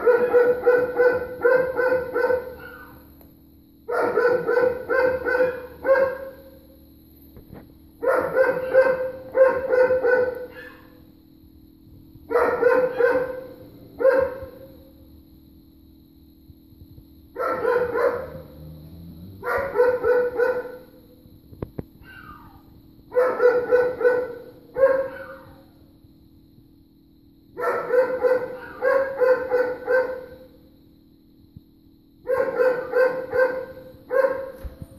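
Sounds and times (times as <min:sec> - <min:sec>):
dogs barking: 0:00.0 - 0:03.1, 0:03.9 - 0:06.6, 0:08.0 - 0:11.0, 0:12.3 - 0:14.8, 0:17.4 - 0:21.0, 0:22.0 - 0:25.8, 0:27.6 - 0:30.5, 0:32.2 - 0:34.8.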